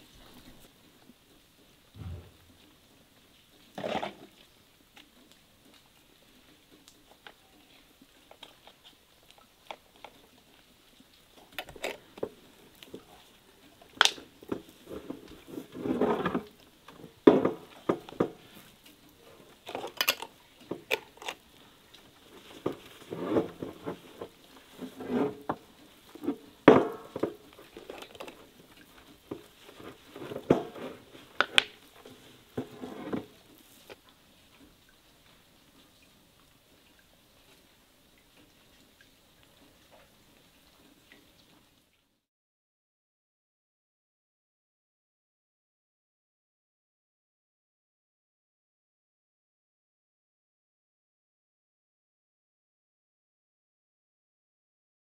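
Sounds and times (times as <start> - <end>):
sharp knocks: 2.0 - 2.5.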